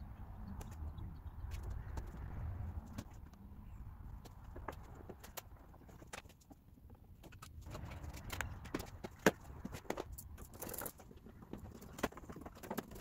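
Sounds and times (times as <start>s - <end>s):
plastic parts clicking and knocking: 7.2s - 13.0s.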